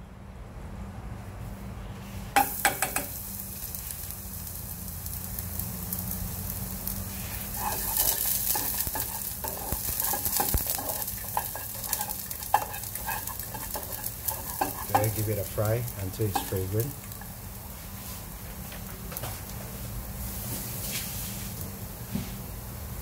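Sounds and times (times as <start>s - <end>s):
spatula scraping and tapping pot: 2.4s - 3.2s, 7.4s - 17.3s
garlic sizzling in hot oil: 2.4s - 23.0s.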